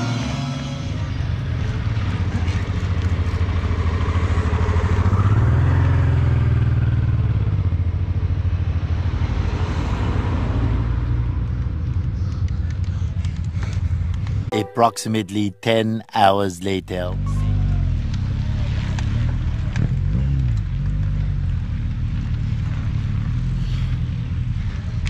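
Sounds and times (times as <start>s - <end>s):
car engine rumble: 0.0s - 9.5s, 17.0s - 25.0s.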